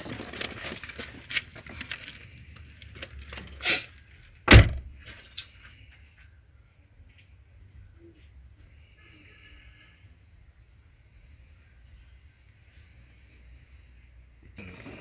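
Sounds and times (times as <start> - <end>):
small tools clicking and rattling: 1.4 - 3.2.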